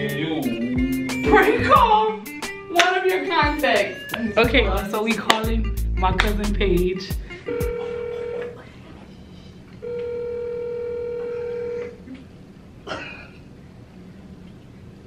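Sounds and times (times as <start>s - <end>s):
telephone ringing tone beeps: 7.5s - 8.5s, 9.8s - 11.8s.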